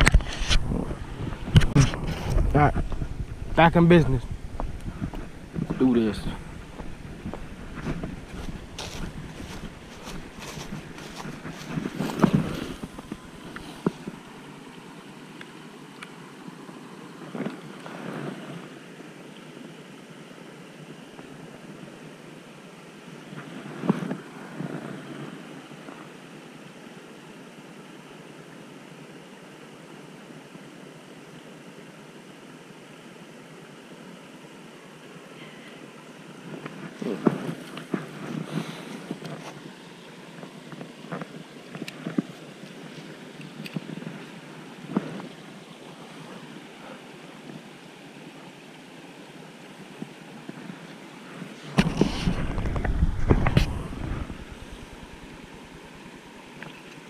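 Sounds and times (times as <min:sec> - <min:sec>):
wind noise on microphone: 0:00.0 - 0:14.2, 0:51.7 - 0:56.0
outdoor background noise: 0:00.0 - 0:57.0.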